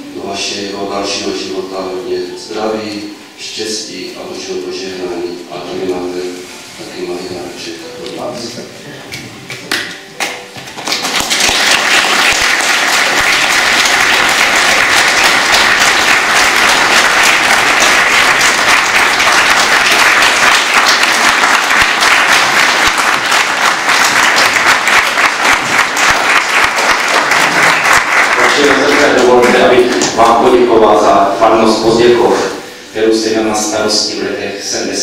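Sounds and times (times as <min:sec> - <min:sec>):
congregation applauding: 0:09.5 - 0:32.1.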